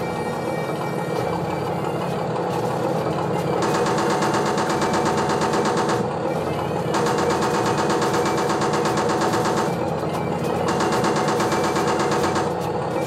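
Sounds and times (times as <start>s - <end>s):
tank engine idling: 0.0s - 13.0s
machine-gun fire: 3.6s - 6.1s, 6.9s - 9.9s, 10.6s - 12.7s.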